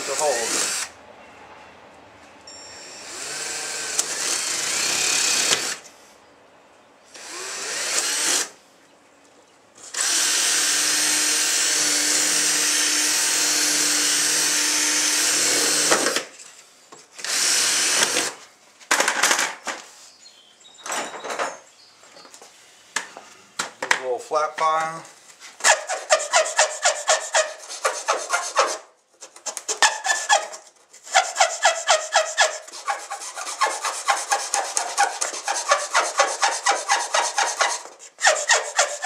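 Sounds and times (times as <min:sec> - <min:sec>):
power drill boring holes: 0:00.0 - 0:00.9, 0:02.8 - 0:05.8, 0:07.1 - 0:08.5, 0:09.8 - 0:16.3, 0:17.2 - 0:18.4.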